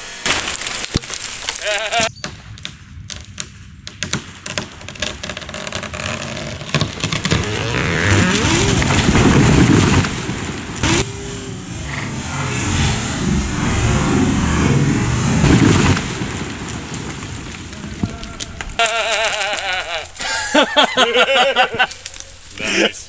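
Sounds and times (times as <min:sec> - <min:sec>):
wood cracking: 0:02.6 - 0:11.0, 0:15.8 - 0:20.6, 0:21.8 - 0:22.5
wood creaking: 0:04.4 - 0:11.1
engine running: 0:07.2 - 0:17.9.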